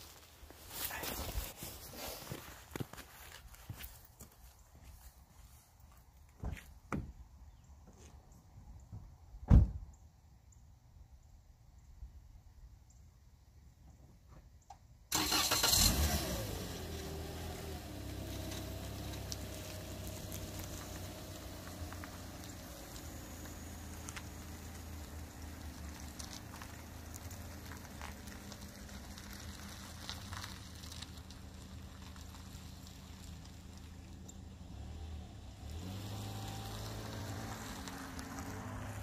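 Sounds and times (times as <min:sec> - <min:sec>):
car engine starting and running: 0:15.1 - 0:39.0.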